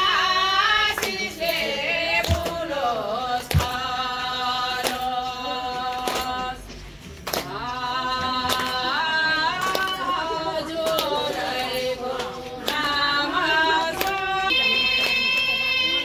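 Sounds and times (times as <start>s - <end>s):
woman singing: 7.5s - 16.0s.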